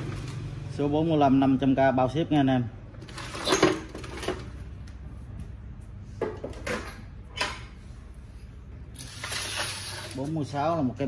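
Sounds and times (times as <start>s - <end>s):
objects knocking and clattering: 3.0s - 4.7s, 6.1s - 7.8s
steady low hum: 4.4s - 9.0s.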